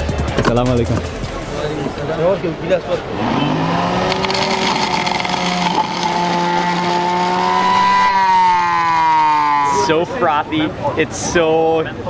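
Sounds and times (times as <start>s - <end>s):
electric juicer motor running: 3.8s - 9.8s.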